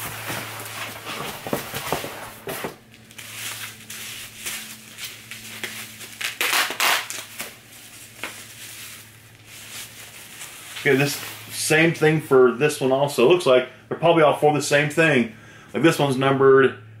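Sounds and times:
cardboard packaging handled: 0:00.0 - 0:11.5
bubble wrap crinkling: 0:00.0 - 0:11.6.

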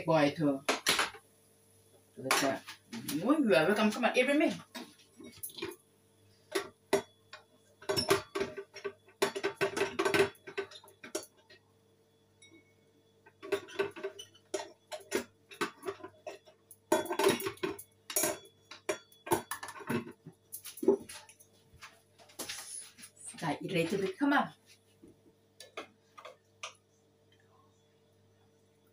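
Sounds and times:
faint steady hum: 0:00.0 - 0:28.9
dishes and cutlery clattering: 0:04.7 - 0:05.8, 0:06.5 - 0:11.5, 0:13.3 - 0:21.4.

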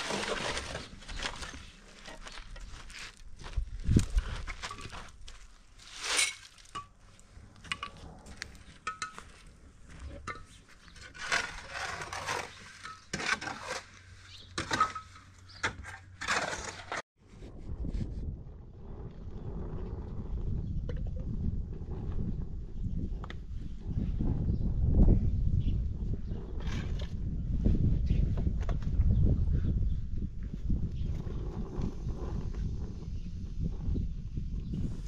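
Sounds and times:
shovel scraping concrete blocks: 0:00.0 - 0:03.2, 0:05.8 - 0:06.8, 0:10.2 - 0:17.0.

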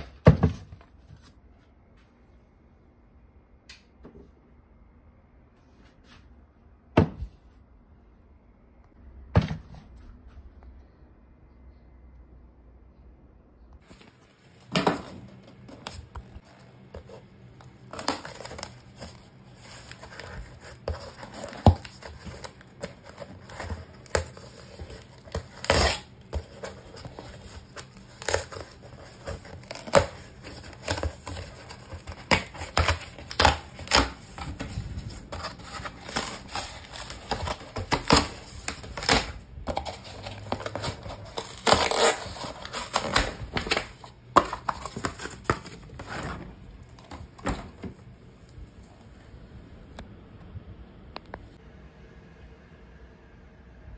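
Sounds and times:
cardboard scraping and rustling: 0:13.8 - 0:48.0
cardboard box tearing: 0:35.3 - 0:46.2.

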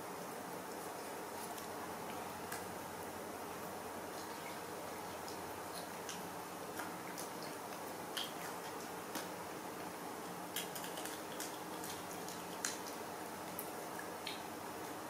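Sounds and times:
steady low hiss: 0:00.0 - 0:15.0
small clicks and ticks: 0:05.2 - 0:09.9, 0:10.5 - 0:14.5.

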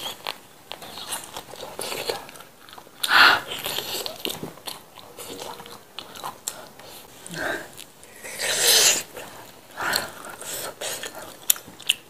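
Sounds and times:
wet biting and chewing: 0:09.4 - 0:12.0.

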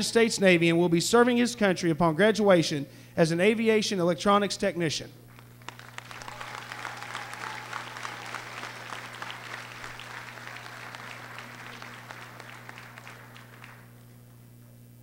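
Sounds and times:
low steady hum: 0:00.0 - 0:15.0
crowd applauding: 0:05.3 - 0:14.2.

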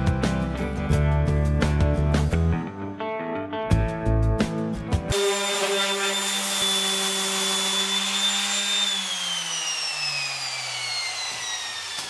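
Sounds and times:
electric sander running: 0:05.1 - 0:12.0
motor winding down whine: 0:05.1 - 0:12.0.

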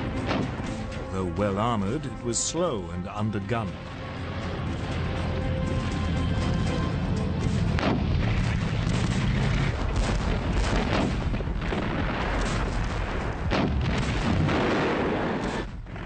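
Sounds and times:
gunfire: 0:00.0 - 0:00.8, 0:07.7 - 0:16.0
artillery booms: 0:00.0 - 0:00.9, 0:07.7 - 0:16.0
background music: 0:00.0 - 0:12.7
dense battle rumble: 0:03.2 - 0:16.0.

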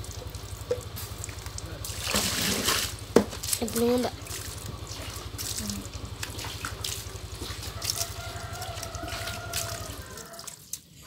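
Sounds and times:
steady low hum: 0:00.0 - 0:10.2
tap water running and splashing: 0:00.0 - 0:11.0
water drips: 0:00.0 - 0:11.0.

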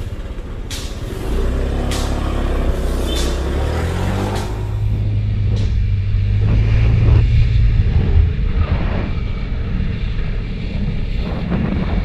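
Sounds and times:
motorcycle engine running: 0:00.0 - 0:12.0
wind buffeting microphone: 0:04.4 - 0:12.0.

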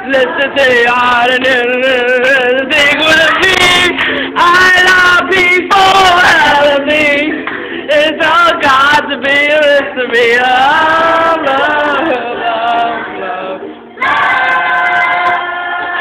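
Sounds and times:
group singing in harmony: 0:00.0 - 0:16.0.

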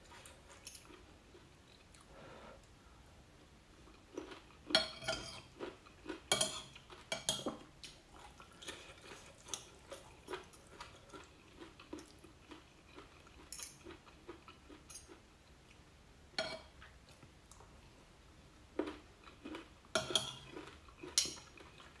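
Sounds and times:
cutlery clinking on ceramic plate: 0:04.8 - 0:05.5, 0:06.3 - 0:07.6, 0:20.0 - 0:20.5.

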